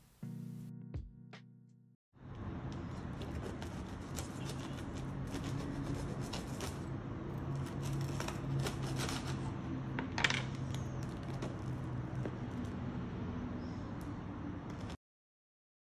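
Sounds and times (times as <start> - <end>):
knife cutting crusty bread: 2.8 - 9.6, 10.6 - 12.8.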